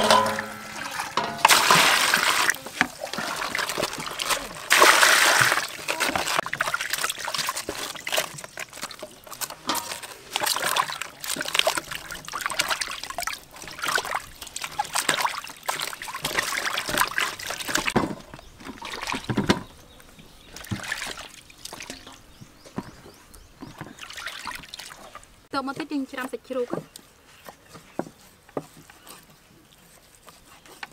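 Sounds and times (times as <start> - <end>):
water splashing in steel basin: 0.0 - 18.0, 18.6 - 19.7, 20.5 - 22.4, 23.7 - 25.5
small water drips: 0.0 - 25.5.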